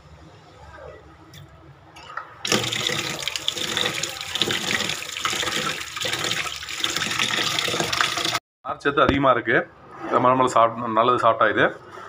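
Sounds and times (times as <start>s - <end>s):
kitchen tap water running: 2.4s - 8.4s.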